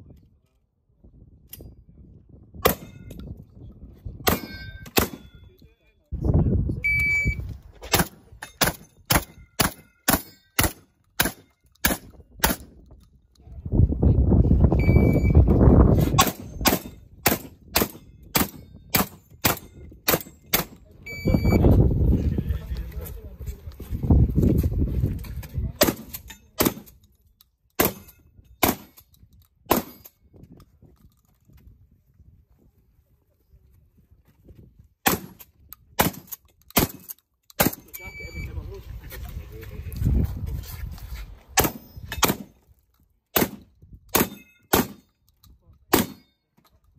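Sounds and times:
shotgun shots: 4.3s - 5.3s, 7.9s - 12.7s, 16.2s - 20.8s, 25.8s - 26.9s, 27.8s - 29.0s, 29.7s - 30.0s, 35.0s - 35.4s, 36.0s - 37.9s, 41.6s - 42.5s, 43.3s - 45.1s, 45.9s - 46.2s.

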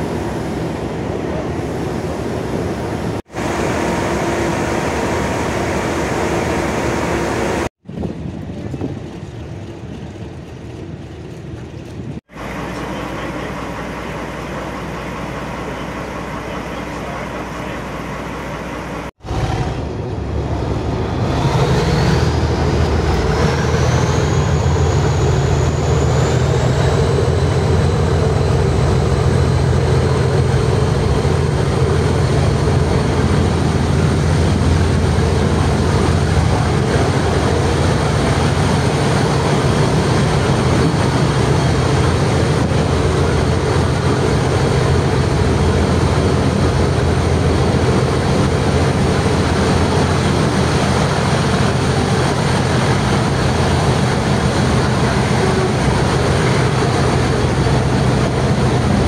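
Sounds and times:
diesel engine running loudly: 12.3s - 59.0s.

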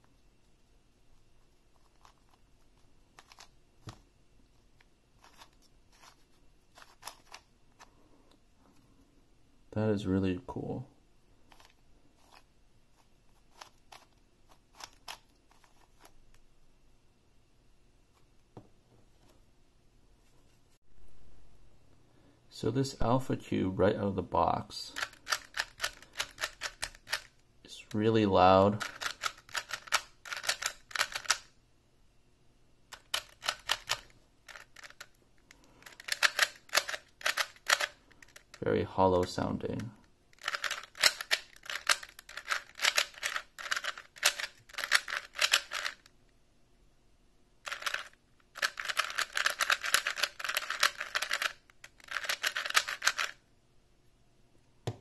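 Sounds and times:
puzzle cube clicking: 25.0s - 27.4s, 28.8s - 31.5s, 32.9s - 38.5s, 40.4s - 46.1s, 47.7s - 53.4s.

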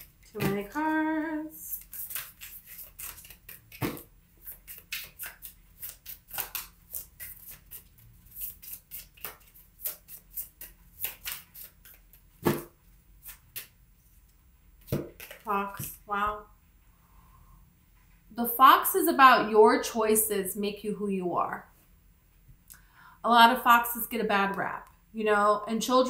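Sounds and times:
cards knocking: 0.4s - 0.8s, 2.0s - 7.6s
cards shuffling: 1.6s - 13.8s, 14.8s - 16.0s.

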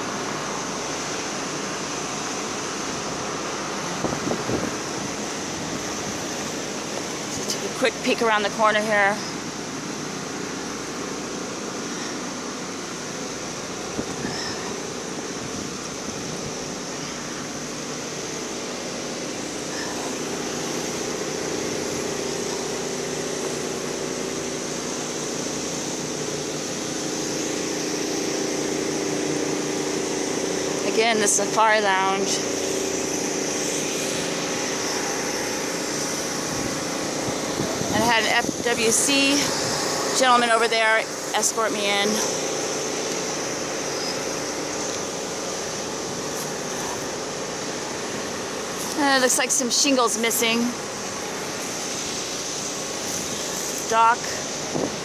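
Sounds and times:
motor drone: 0.0s - 55.0s
wind noise on microphone: 3.1s - 6.4s, 13.8s - 16.7s, 36.4s - 40.1s, 54.6s - 55.0s.

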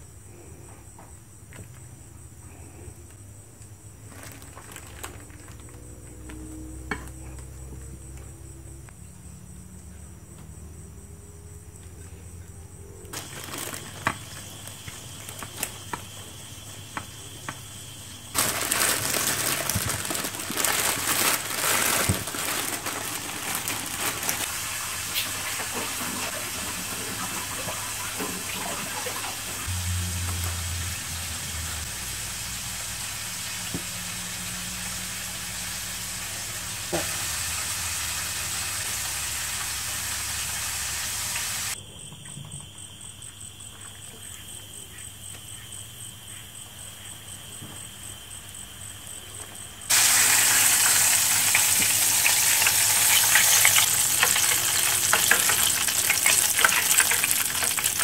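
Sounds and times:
loud steady hiss: 13.1s - 41.8s, 49.9s - 58.0s.

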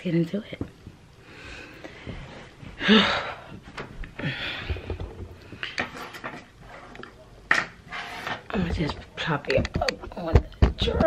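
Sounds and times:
woman breathing out: 4.2s - 5.8s.

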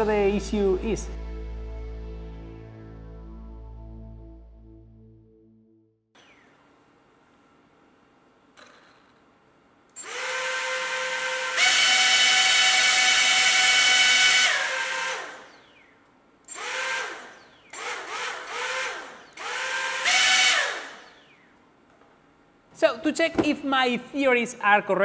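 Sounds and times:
electric propellers whining: 10.0s - 21.5s.

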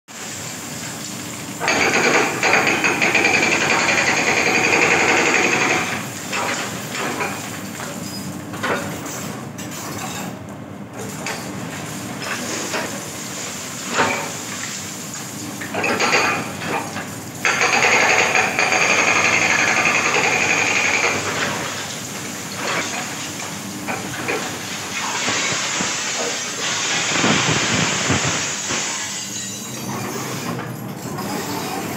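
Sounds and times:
excavator working: 0.8s - 8.0s, 15.4s - 31.9s.

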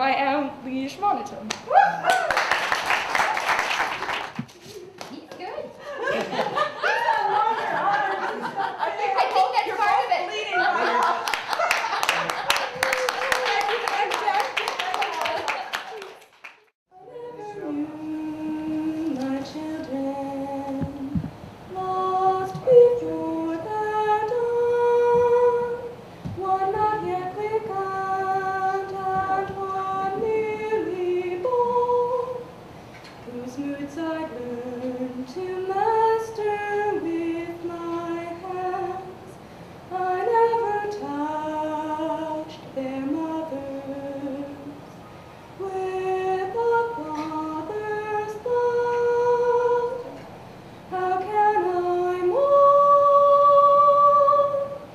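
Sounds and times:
woman singing unaccompanied: 16.9s - 32.6s, 33.2s - 39.3s, 39.9s - 44.8s, 45.6s - 50.2s, 50.9s - 54.9s.

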